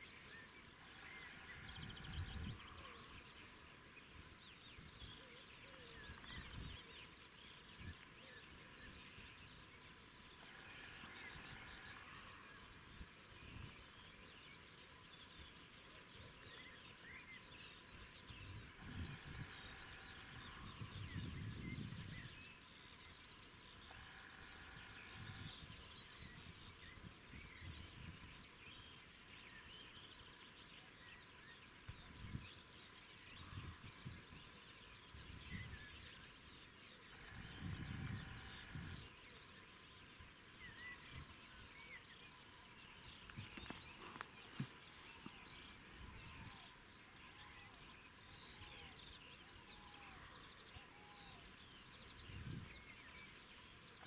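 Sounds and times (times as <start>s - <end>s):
songbirds chirping: 0.0s - 54.0s
wind rumble on microphone: 1.2s - 7.0s, 18.3s - 22.5s, 24.0s - 28.5s, 31.9s - 32.6s, 33.2s - 36.2s, 37.1s - 39.2s, 52.1s - 53.2s.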